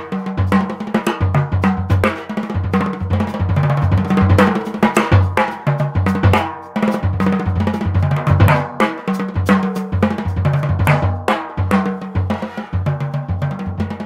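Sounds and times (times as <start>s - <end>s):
drum kit played with sticks: 0.0s - 14.0s.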